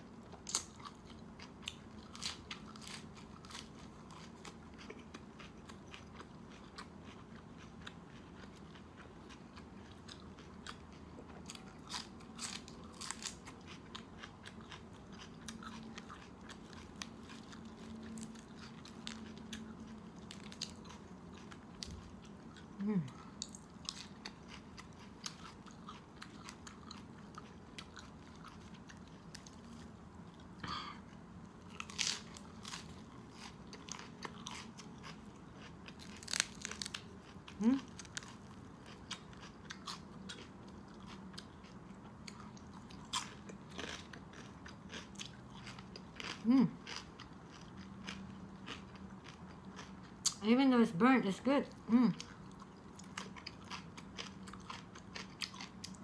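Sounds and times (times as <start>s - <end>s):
wet chewing and crunching: 0.0s - 50.4s, 51.7s - 56.0s
person humming: 46.5s - 46.8s.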